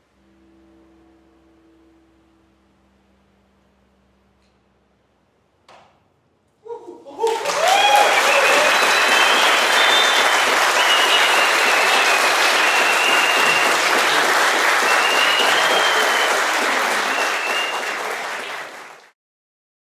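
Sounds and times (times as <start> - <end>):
audience applauding: 7.0 - 19.2.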